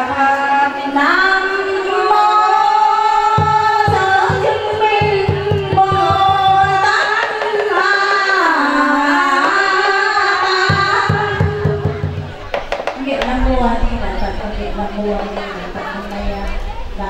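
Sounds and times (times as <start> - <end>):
woman singing a chant: 0.0 - 12.2, 13.0 - 17.0
quick percussion beat: 3.4 - 8.4, 9.3 - 13.4.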